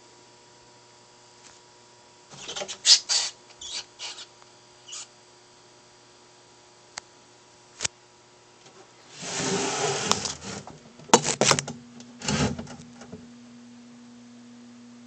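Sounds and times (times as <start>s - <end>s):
rat squealing: 2.4s - 5.1s.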